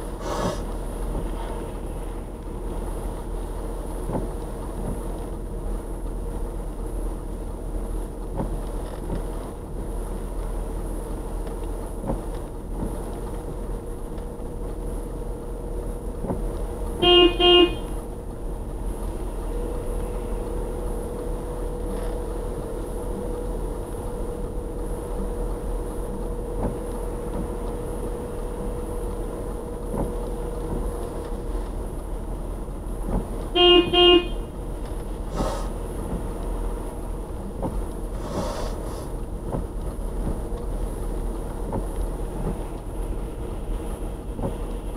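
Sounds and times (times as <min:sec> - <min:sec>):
car driving on wet road: 0:00.0 - 0:44.9
car horn toots: 0:17.0 - 0:18.0, 0:33.5 - 0:34.5.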